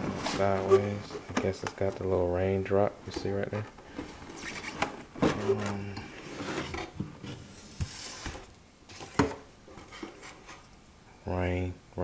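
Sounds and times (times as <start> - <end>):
cardboard rubbing and scraping: 0.0 - 2.0, 4.3 - 8.5.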